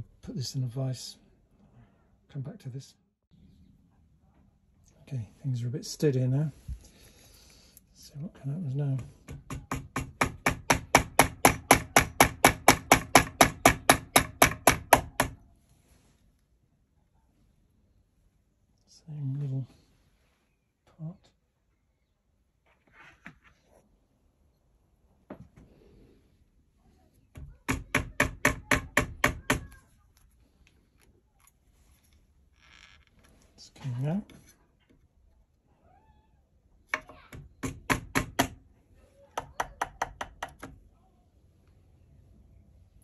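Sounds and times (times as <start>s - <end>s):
hammer tapping a pin punch: 37.6s - 38.6s.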